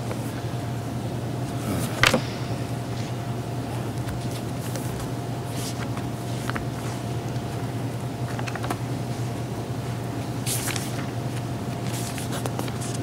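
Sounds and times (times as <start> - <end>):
steady low hum: 0.0 - 13.0
book pages turning: 3.9 - 9.3, 10.4 - 13.0.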